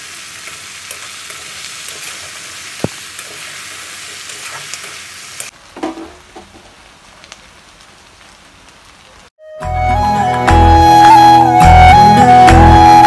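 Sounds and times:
vegetables sizzling in a wok: 0:00.0 - 0:09.3.

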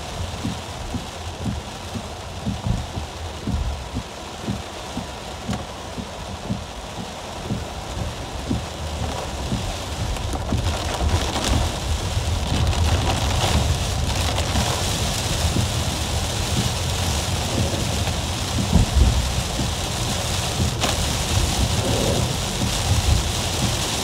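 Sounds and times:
heavy rain on car roof: 0:00.0 - 0:24.0.

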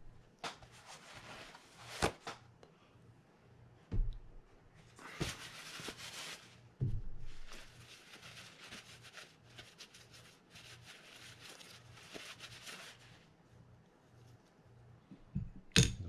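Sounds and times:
paper towel rubbing metal spool: 0:07.5 - 0:13.2.

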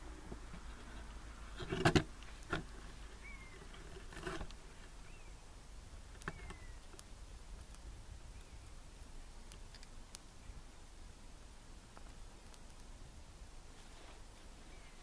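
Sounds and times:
torch fire crackling and popping: 0:00.0 - 0:05.0, 0:05.6 - 0:14.4
faint bird chirps: 0:03.2 - 0:03.8, 0:05.0 - 0:05.6, 0:06.2 - 0:07.0, 0:08.2 - 0:08.8, 0:14.6 - 0:15.0.

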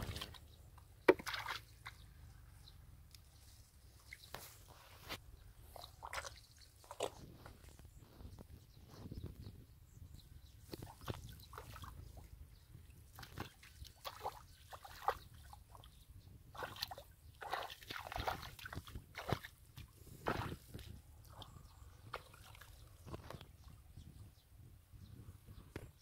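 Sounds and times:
wet mud squelching: 0:00.0 - 0:02.2, 0:04.0 - 0:07.8, 0:13.0 - 0:23.4.

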